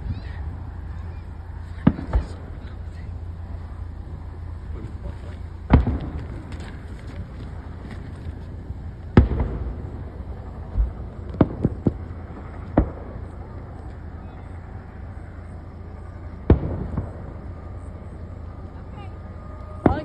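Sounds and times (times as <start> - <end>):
steady low rumble: 0.0 - 20.0
fireworks bangs and cracks: 1.7 - 3.4, 5.0 - 14.0, 16.4 - 17.4.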